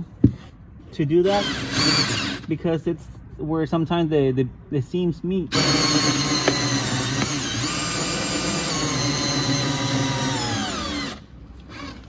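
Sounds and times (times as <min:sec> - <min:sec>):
cordless drill motor running: 0:01.3 - 0:02.5, 0:05.5 - 0:12.0.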